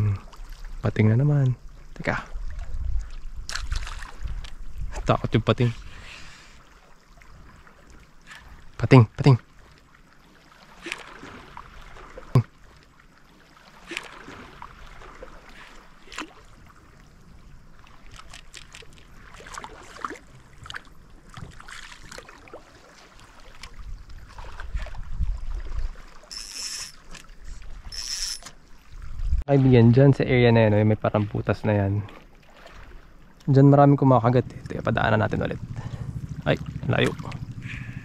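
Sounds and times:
small waves lapping: 0.0s - 38.0s
low rumble: 33.9s - 38.0s.

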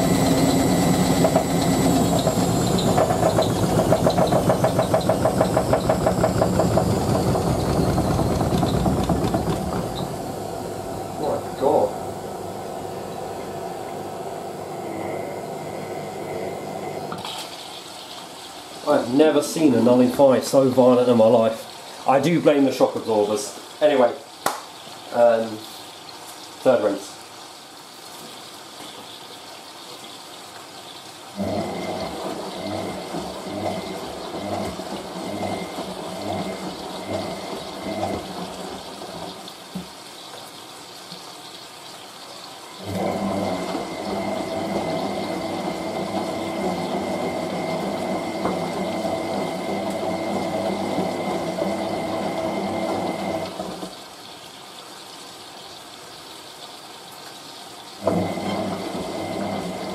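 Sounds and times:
thin steady whine: 0.0s - 9.1s
washing machine drum turning: 0.0s - 14.2s, 31.4s - 39.9s, 42.8s - 54.0s, 58.0s - 59.9s
water rushing into washing machine: 0.0s - 59.9s.

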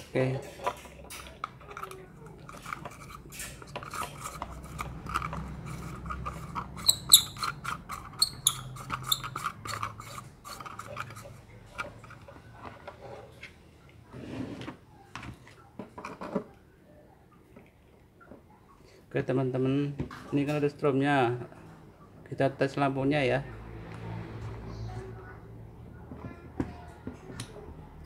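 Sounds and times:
plastic and metal squeaking: 0.4s - 13.4s.

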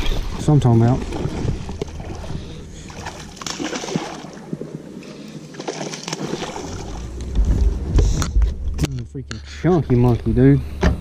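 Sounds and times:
fish splashing in water: 1.0s - 4.6s, 5.5s - 7.1s.

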